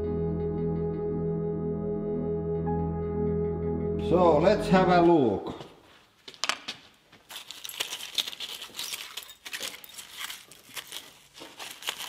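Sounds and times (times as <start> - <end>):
debris clinking and crackling: 7.4 - 12.0.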